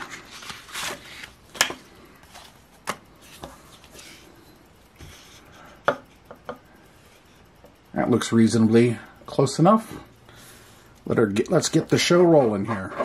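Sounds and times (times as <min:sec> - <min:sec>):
paper rustling: 0:00.0 - 0:04.3.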